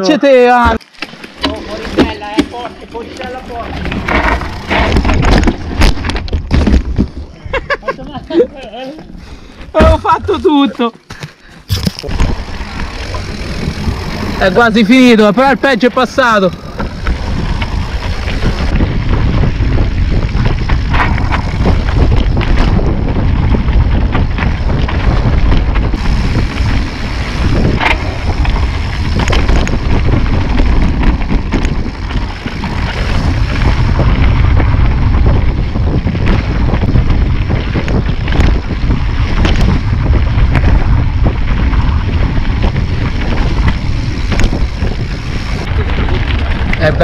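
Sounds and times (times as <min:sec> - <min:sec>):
bike tyre noise on dirt: 0:00.0 - 0:47.0
bike knocking and rattling: 0:00.5 - 0:47.0
wind buffeting microphone: 0:11.6 - 0:47.0.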